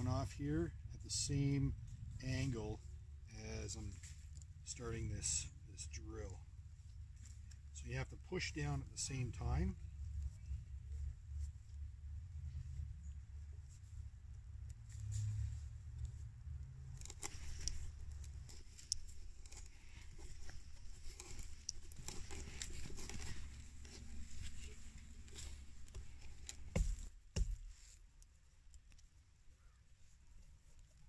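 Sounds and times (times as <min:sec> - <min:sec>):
hand auger scraping wood: 0:16.8 - 0:28.0.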